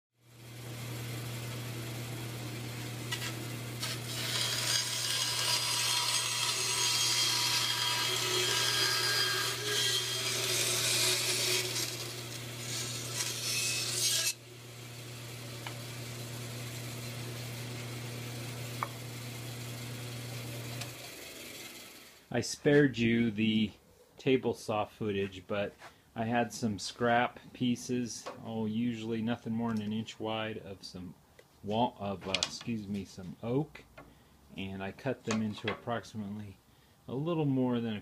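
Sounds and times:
bandsaw motor hum: 0:00.2 - 0:22.2
saw blade cutting wood: 0:03.0 - 0:14.4.

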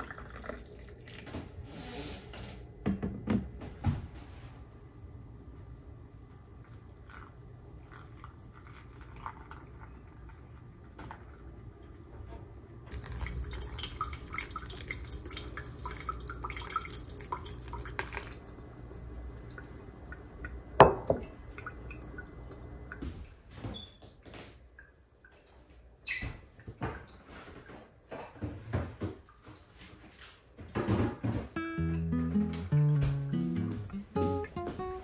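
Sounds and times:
water pouring and dripping: 0:12.9 - 0:27.2.

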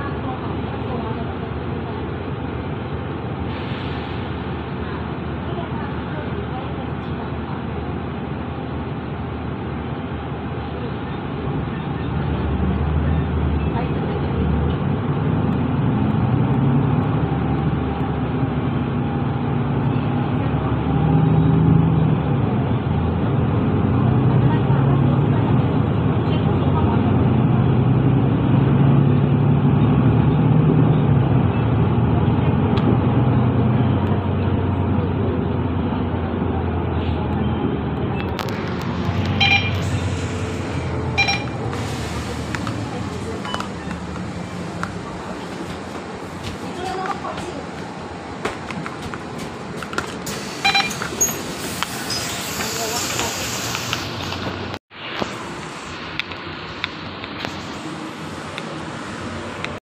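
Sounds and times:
bus diesel engine rumbling: 0:00.0 - 0:59.8
short electronic beeps: 0:39.3 - 0:40.0, 0:41.1 - 0:41.6, 0:50.6 - 0:51.4.

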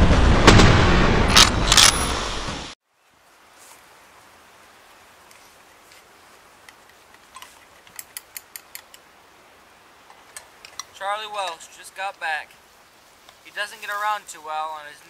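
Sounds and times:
faint steady hiss: 0:02.8 - 0:15.0
metallic clicks and taps: 0:06.6 - 0:09.0.

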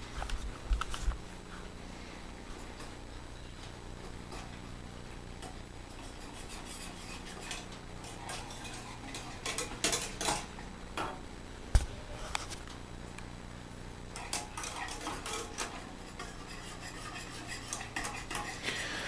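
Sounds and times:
steady low hum: 0:00.0 - 0:19.0
metal whisk scraping pot: 0:05.9 - 0:10.5, 0:14.1 - 0:19.0.

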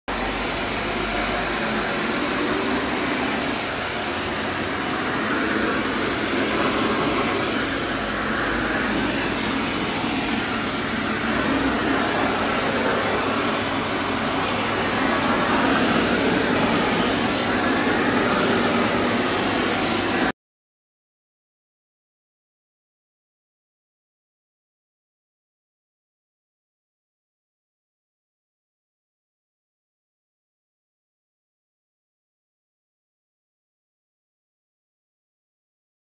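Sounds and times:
vacuum cleaner running: 0:00.1 - 0:20.3.

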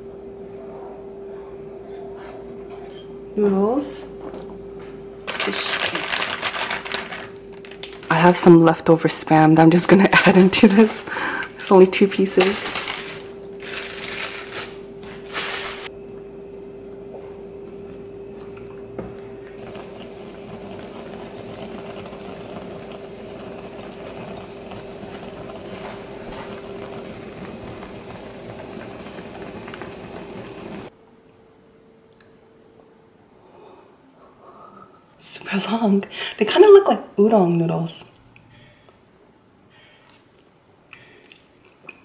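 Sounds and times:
steady hum: 0:00.0 - 0:37.2
sauce bubbling in a pan: 0:19.3 - 0:30.9.

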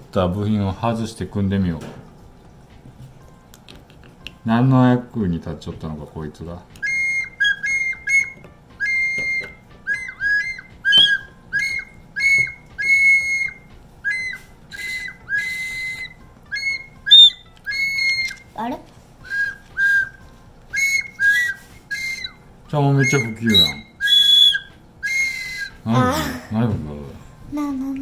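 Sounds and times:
pen whistle tooting: 0:06.8 - 0:18.5, 0:19.2 - 0:22.4, 0:23.0 - 0:26.3.

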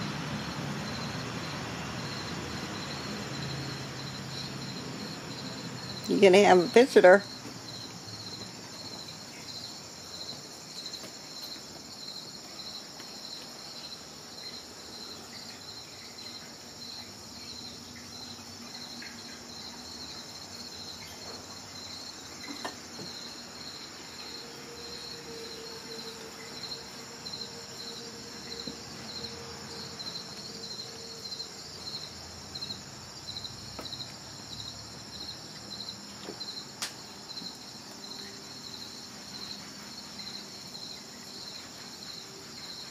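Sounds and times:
high insect drone: 0:00.0 - 0:42.9
insects chirping: 0:00.0 - 0:42.9.

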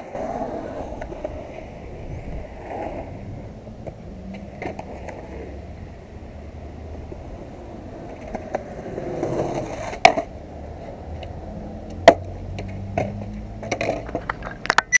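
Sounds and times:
skateboard clacking on ground: 0:00.0 - 0:05.9, 0:07.1 - 0:15.0
skateboard wheels rolling on concrete: 0:00.0 - 0:15.0
skateboard knocks and rattles: 0:08.0 - 0:10.3, 0:12.0 - 0:15.0.

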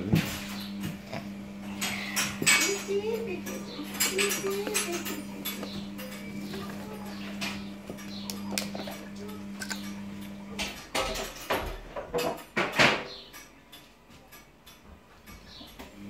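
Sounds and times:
steady low hum: 0:00.0 - 0:11.4
plastic syringe and cup clicking: 0:08.1 - 0:08.9, 0:09.6 - 0:09.9.

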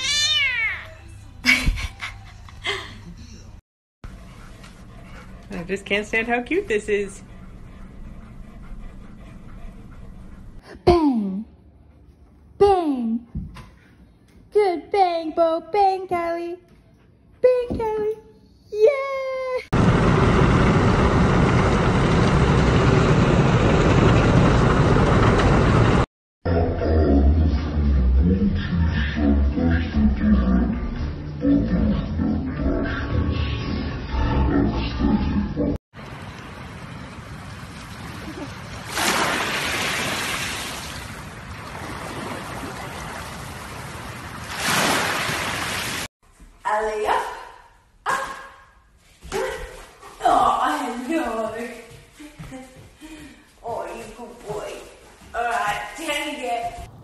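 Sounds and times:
small waves breaking on shore: 0:36.1 - 0:46.1.

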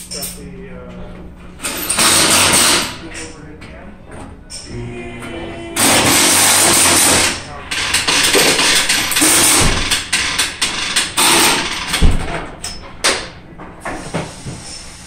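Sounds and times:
metal clanks: 0:05.8 - 0:13.4
tools knocking and clicking: 0:06.0 - 0:13.3
air tool hissing: 0:13.9 - 0:15.0.

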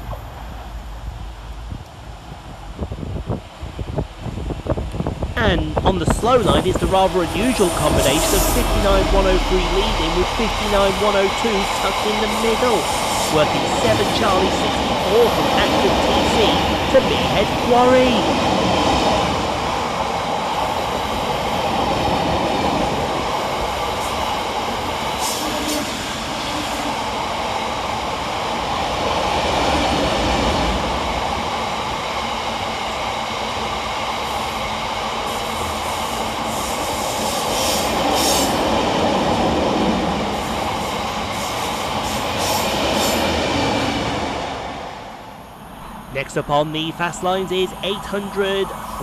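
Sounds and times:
freight train wheels rumbling: 0:00.0 - 0:49.0.

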